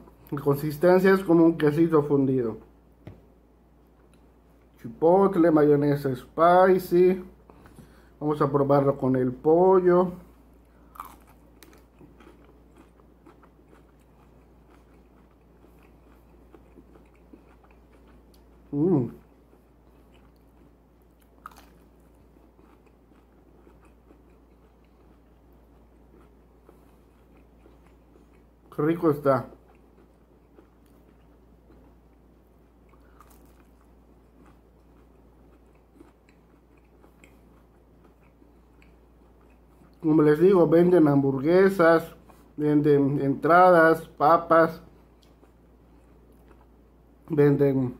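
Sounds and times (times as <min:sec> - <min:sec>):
person chewing crunchy food: 0:10.2 - 0:40.1, 0:44.7 - 0:47.0.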